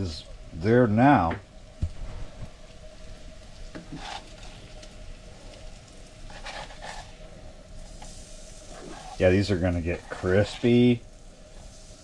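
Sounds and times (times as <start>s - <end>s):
fish sizzling in frying pan: 0.8s - 12.0s
spatula scraping pan: 3.7s - 4.8s, 6.3s - 7.2s, 8.7s - 10.9s.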